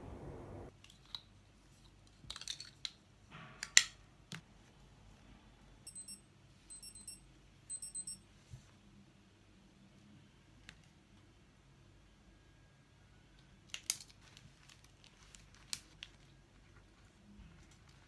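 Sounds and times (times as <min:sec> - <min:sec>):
plastic clicks and rattles: 0:02.1 - 0:03.0
thermometer beeping: 0:05.9 - 0:08.2.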